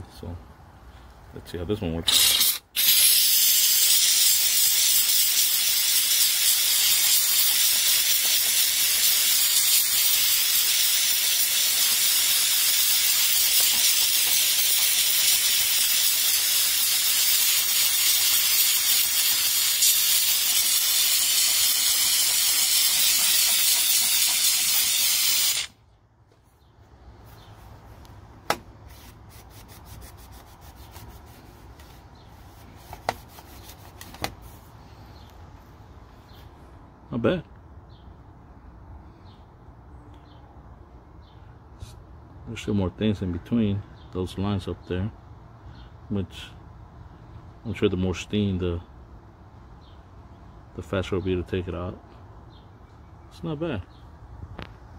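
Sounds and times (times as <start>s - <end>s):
steam cleaner hissing: 2.1s - 25.7s.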